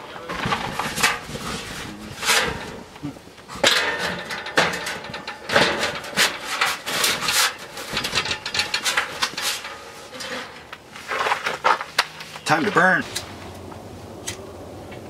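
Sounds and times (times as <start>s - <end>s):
sheet metal scraping: 0.0s - 13.3s
metal knocks: 0.3s - 12.1s.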